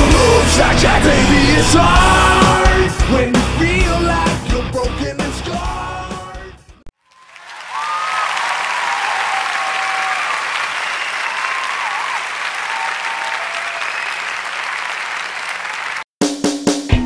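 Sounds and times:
crowd applause: 0:07.0 - 0:16.1
faint cheers: 0:07.1 - 0:16.0.

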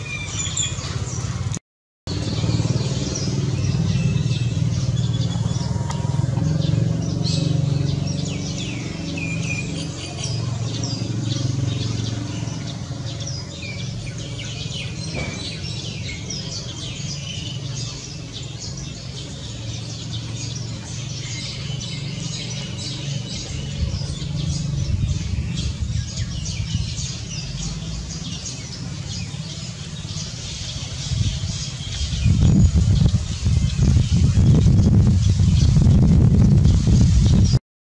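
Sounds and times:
small birds chirping: 0:00.0 - 0:37.6
steady low rumble: 0:30.8 - 0:37.6.

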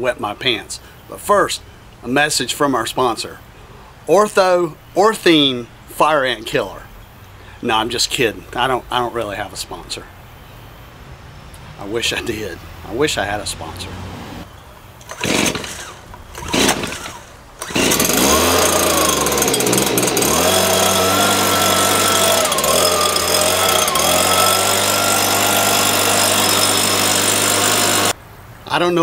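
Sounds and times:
leaf blower engine running: 0:15.0 - 0:28.2
starter cord pulls: 0:15.0 - 0:28.2.

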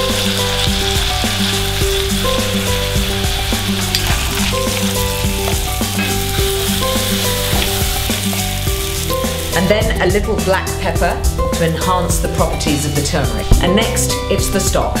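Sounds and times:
vegetables sizzling in oil: 0:00.0 - 0:10.7
background music: 0:00.0 - 0:15.0.

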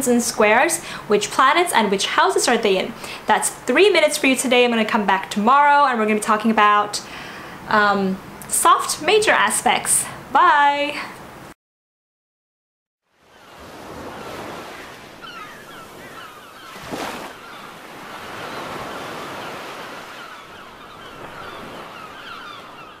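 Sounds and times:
ocean surf washing onto beach: 0:13.2 - 0:23.0.

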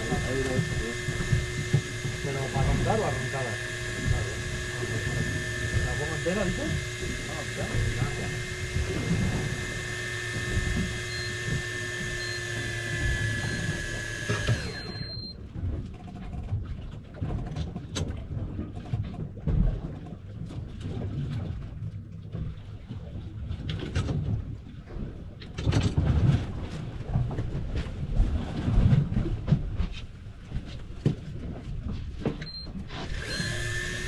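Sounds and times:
fishing reel motor whining: 0:00.0 - 0:15.4, 0:32.6 - 0:34.0.

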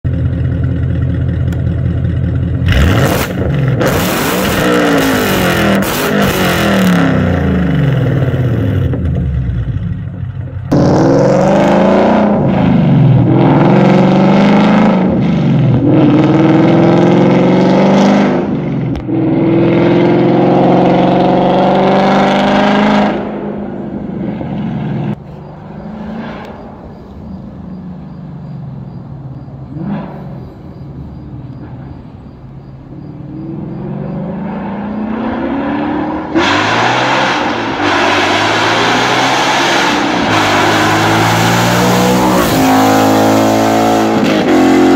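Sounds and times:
loud car engine revving: 0:02.6 - 0:09.9, 0:10.7 - 0:27.4, 0:33.2 - 0:44.9.

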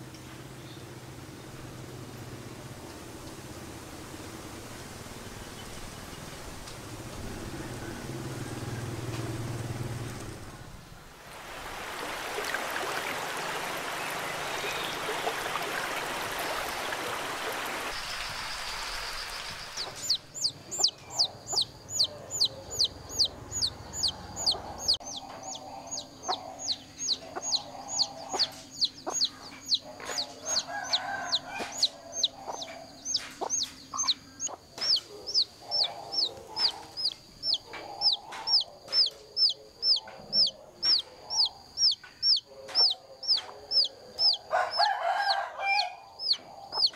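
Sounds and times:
chick peeping: 0:19.7 - 0:46.9
hen clucking softly: 0:19.8 - 0:46.9.

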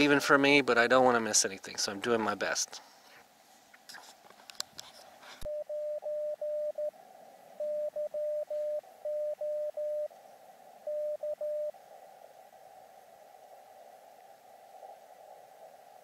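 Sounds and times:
morse code tone: 0:05.5 - 0:06.9, 0:07.6 - 0:10.1, 0:10.9 - 0:11.7.

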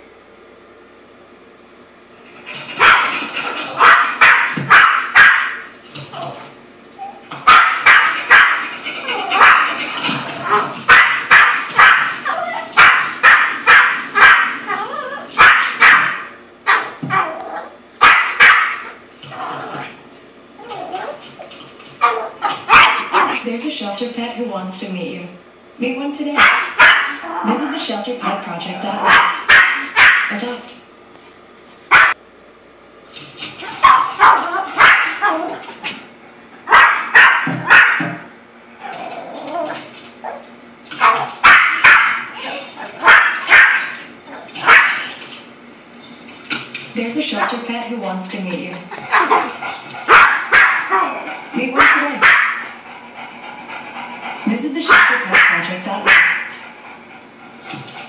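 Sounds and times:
small dog barking: 0:02.8 - 0:03.1, 0:03.8 - 0:05.7, 0:07.4 - 0:08.6, 0:09.3 - 0:09.8, 0:10.5 - 0:14.8, 0:15.4 - 0:19.0, 0:22.0 - 0:23.4, 0:26.4 - 0:27.2, 0:29.0 - 0:30.3, 0:31.9 - 0:32.2, 0:33.8 - 0:35.4, 0:36.7 - 0:38.1, 0:41.0 - 0:42.3, 0:43.0 - 0:44.0, 0:44.6 - 0:45.0, 0:50.1 - 0:51.2, 0:51.8 - 0:52.6, 0:54.9 - 0:56.5
small dog barking sharply: 0:03.8 - 0:05.6, 0:07.5 - 0:08.6, 0:15.4 - 0:17.3, 0:18.0 - 0:18.9, 0:26.4 - 0:27.2, 0:29.1 - 0:30.3, 0:31.9 - 0:32.2, 0:36.7 - 0:38.1, 0:41.0 - 0:42.2, 0:43.0 - 0:43.9, 0:51.8 - 0:52.6.

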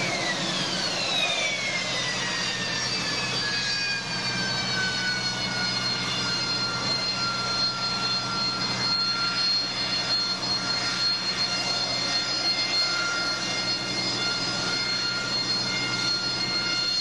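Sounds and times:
high-pitched whine tones: 0:00.0 - 0:17.0
jet engine at hover power: 0:00.0 - 0:17.0.

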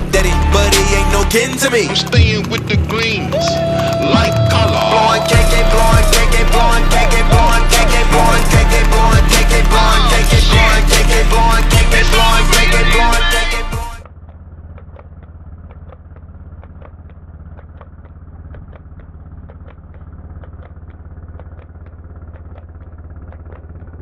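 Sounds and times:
music: 0:00.0 - 0:14.0
hooves clopping on asphalt: 0:00.0 - 0:24.0
vehicle engine drone: 0:00.0 - 0:24.0.

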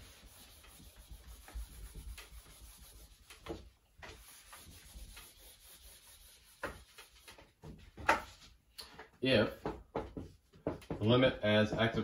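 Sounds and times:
eraser rubbing whiteboard: 0:00.0 - 0:07.8.

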